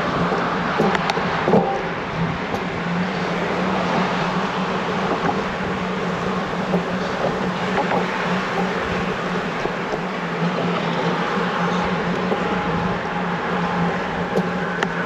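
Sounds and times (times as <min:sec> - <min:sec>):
cars passing: 0:00.0 - 0:15.0
steady rushing noise with low hum: 0:00.0 - 0:15.0.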